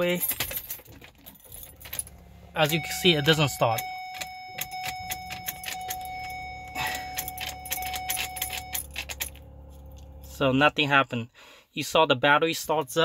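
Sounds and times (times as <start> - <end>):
keys jangling in ignition: 0.0 - 11.1
low hum: 1.6 - 10.7
electronic warning tone: 2.2 - 10.2.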